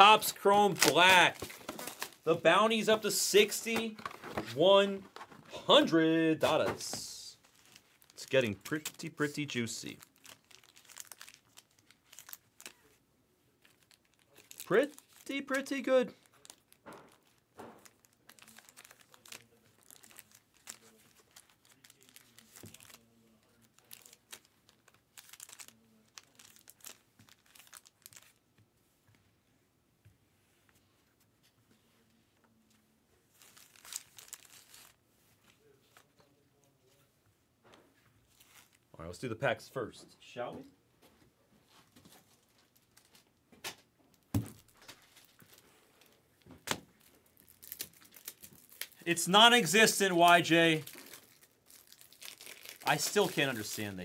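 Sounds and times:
wrapper crinkling: 0:00.0 - 0:02.3, 0:07.4 - 0:13.0, 0:13.6 - 0:28.4, 0:33.3 - 0:35.0, 0:38.3 - 0:38.8, 0:42.1 - 0:43.3, 0:44.1 - 0:54.0
rustling and crinkling of boxes: 0:00.0 - 0:05.6.

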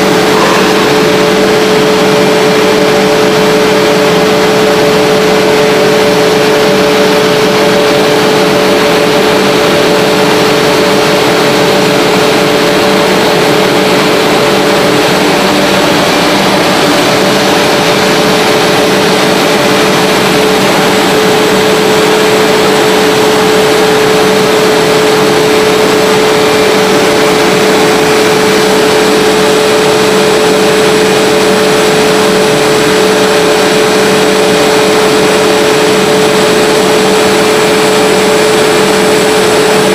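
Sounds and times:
pipe extrusion machinery running: 0:00.0 - 0:39.9.

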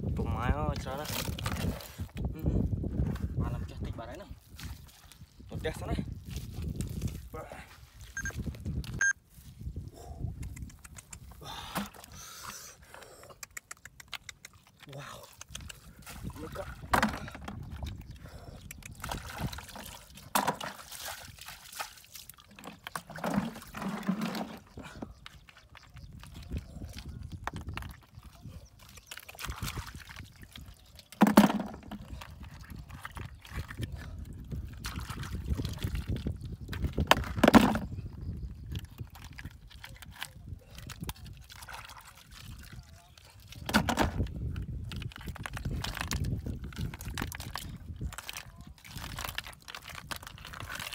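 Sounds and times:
mud squelching: 0:00.1 - 0:50.9
water splashing: 0:19.0 - 0:24.7, 0:41.3 - 0:44.0.

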